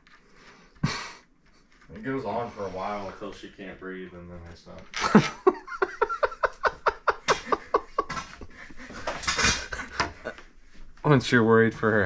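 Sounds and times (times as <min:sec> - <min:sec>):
person laughing hard: 0:05.0 - 0:10.4.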